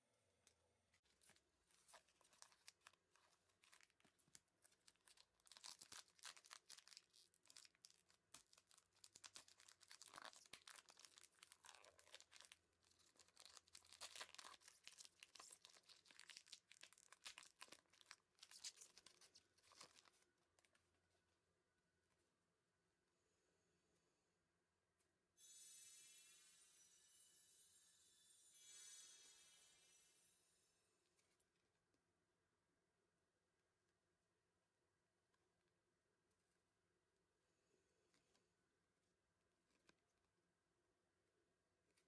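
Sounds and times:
foil wrapper crinkling and tearing: 1.1s - 20.7s.

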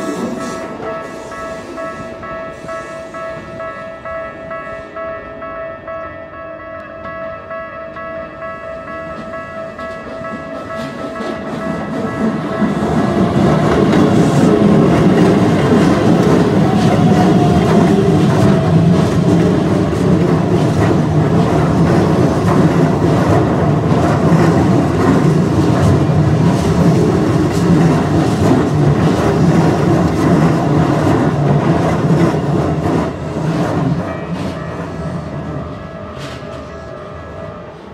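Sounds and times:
train wheels clattering over rail joints: 9.2s - 34.6s.

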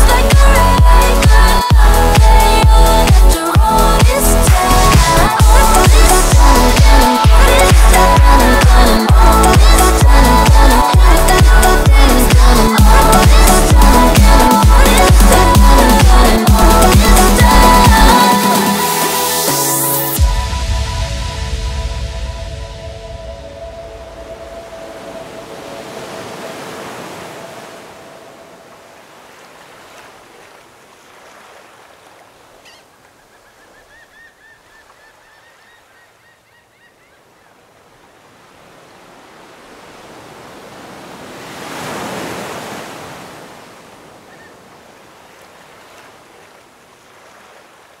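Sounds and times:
waves washing in: 0.0s - 33.3s, 37.6s - 48.0s
held musical chord: 16.4s - 26.1s.

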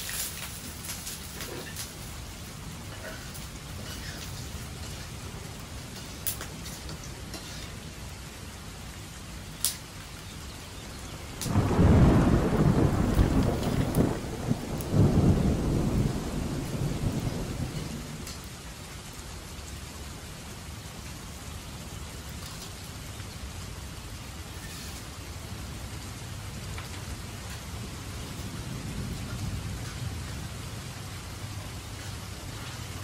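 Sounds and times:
steady rain falling: 0.0s - 33.0s
thunder rumbling: 11.2s - 18.5s, 27.7s - 31.6s.

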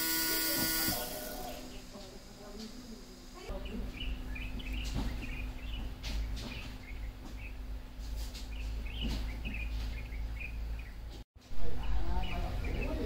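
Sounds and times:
small birds chirping: 3.4s - 13.0s.

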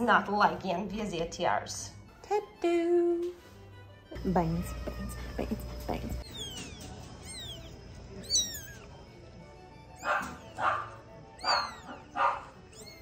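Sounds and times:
light classical music: 0.0s - 13.0s
kitten mewing: 6.2s - 9.0s, 10.0s - 13.0s.

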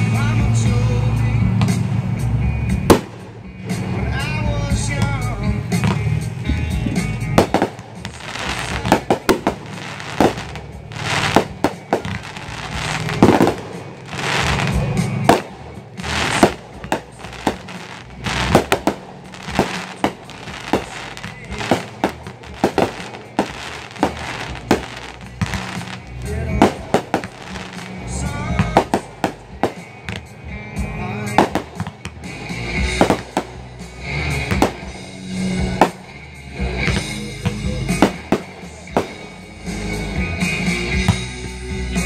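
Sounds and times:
fireworks crackling: 2.8s - 41.1s
fireworks bursting: 2.9s - 4.0s, 7.0s - 30.4s, 31.2s - 36.2s, 36.8s - 40.8s.

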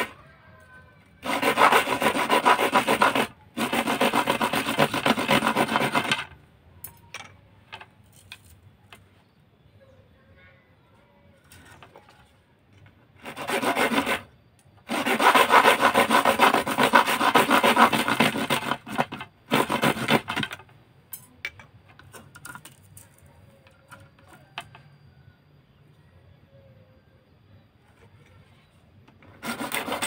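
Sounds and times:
blade sawing fiberglass rod: 1.2s - 6.3s, 13.2s - 20.6s, 29.2s - 30.0s.

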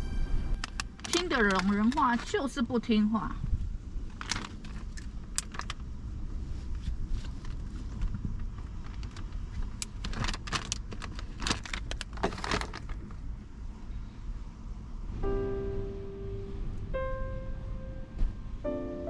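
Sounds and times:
low rumble: 0.0s - 8.4s, 12.8s - 19.0s.

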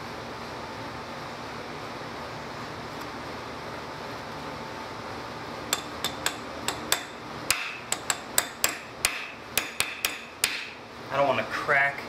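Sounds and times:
metal tool tapping on metal: 5.7s - 10.7s.

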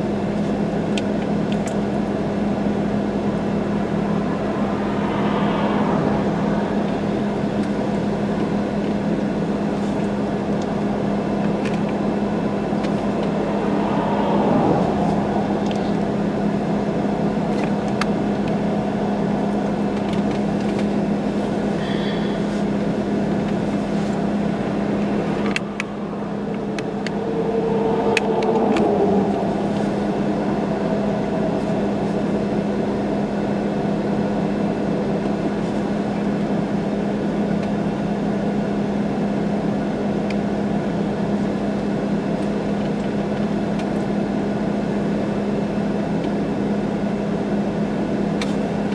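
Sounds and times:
vehicle engine idling: 0.0s - 48.9s.

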